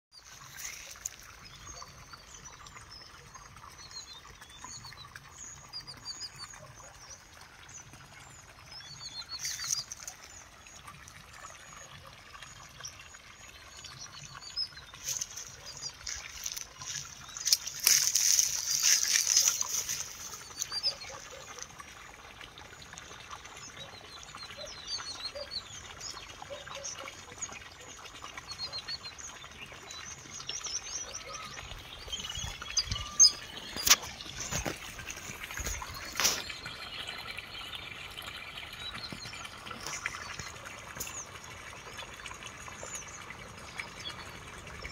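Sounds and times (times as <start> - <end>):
small birds chirping: 11.7 - 21.8, 23.0 - 44.9.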